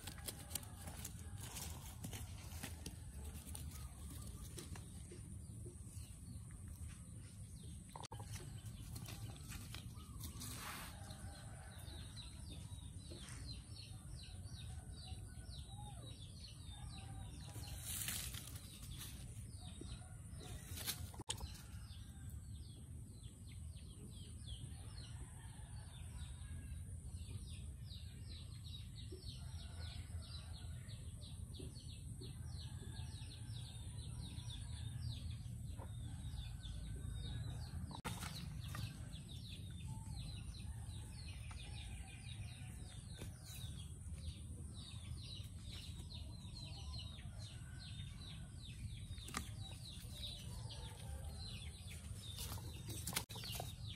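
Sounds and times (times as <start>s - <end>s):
rustles and scuffs: 8.8s - 11.2s.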